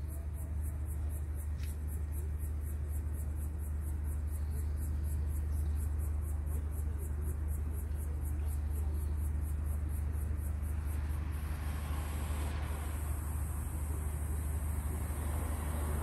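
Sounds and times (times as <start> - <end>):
hiss: 11.1 - 16.0.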